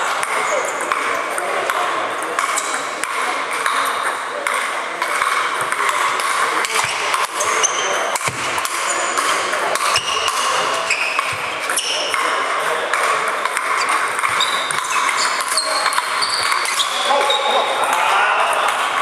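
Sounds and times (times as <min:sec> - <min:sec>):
murmur of voices: 0:00.0 - 0:19.0
ringing pings of balls: 0:13.3 - 0:17.8.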